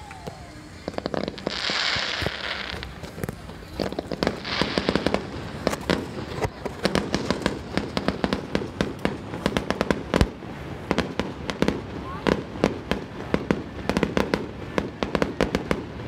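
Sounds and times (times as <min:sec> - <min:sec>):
firework hiss: 0:00.0 - 0:16.0
fireworks crackling and popping: 0:00.0 - 0:16.0
heavy firework boom: 0:00.0 - 0:16.0.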